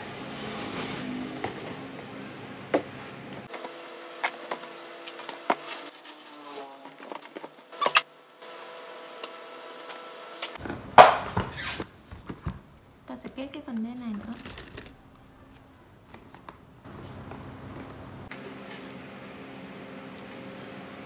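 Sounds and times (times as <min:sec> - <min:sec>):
sharp plastic knocks: 0:10.6 - 0:11.5.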